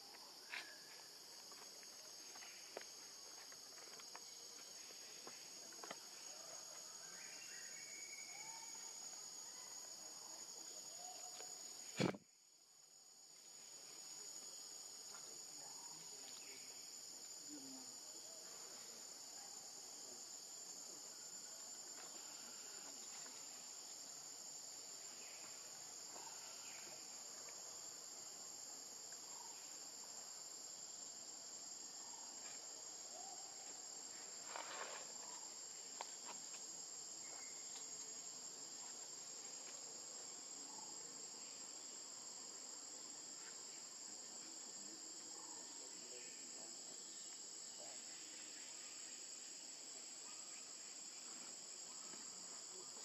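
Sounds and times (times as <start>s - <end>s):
insect chorus buzzing: 0.0s - 53.0s.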